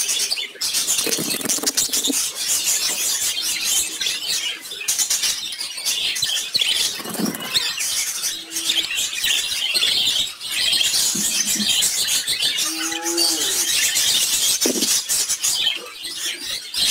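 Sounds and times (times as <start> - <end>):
lovebirds chirping: 0.0 - 16.9.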